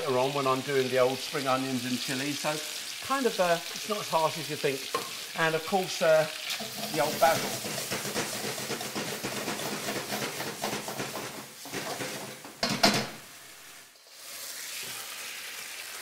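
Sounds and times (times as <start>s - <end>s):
meat sizzling in a wok: 0.0s - 16.0s
spatula scraping a wok: 6.4s - 15.7s
utensil knocking against wok: 6.6s - 13.2s.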